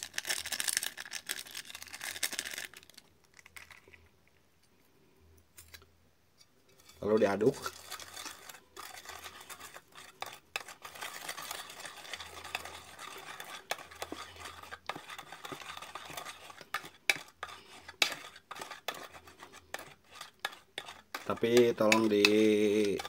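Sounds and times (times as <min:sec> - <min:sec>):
utensil squelching in wet paste: 0:06.7 - 0:23.0.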